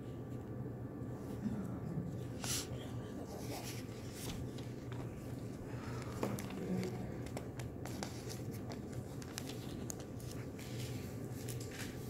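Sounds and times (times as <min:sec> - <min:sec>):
low room hum: 0:00.0 - 0:12.0
book pages turning: 0:03.3 - 0:12.0.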